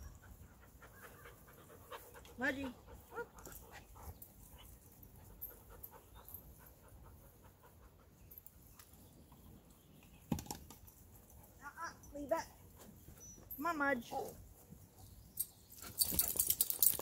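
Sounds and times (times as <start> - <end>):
dog panting: 0.1 - 8.2.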